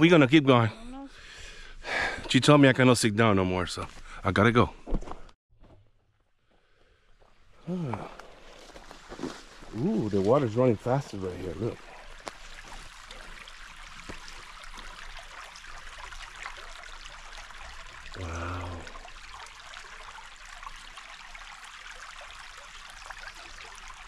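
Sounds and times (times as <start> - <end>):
creek trickling over rocks: 7.7 - 24.0
short low vocal sound: 18.2 - 19.0.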